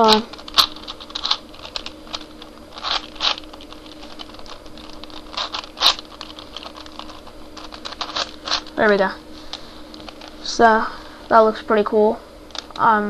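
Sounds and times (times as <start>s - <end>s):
puzzle cube clicking: 0.0s - 8.8s.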